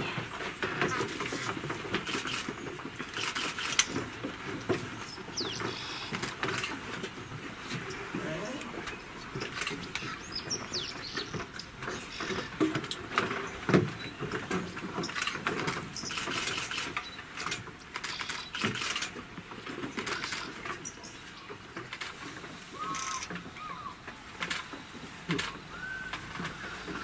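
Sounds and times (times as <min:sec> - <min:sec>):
grass and twigs rustling and snapping: 0:00.0 - 0:27.0
bird chirping: 0:05.0 - 0:06.2, 0:07.8 - 0:12.5, 0:18.0 - 0:18.6.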